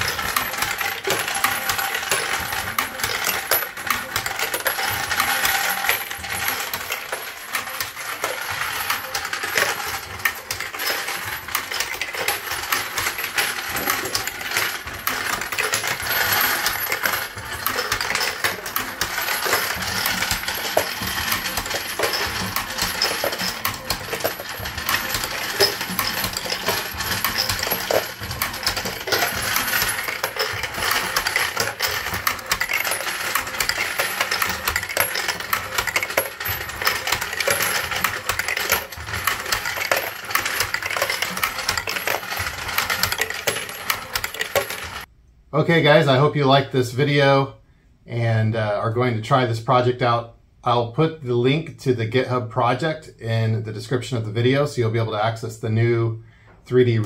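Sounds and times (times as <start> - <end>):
brass cases clinking: 0.0 - 45.1.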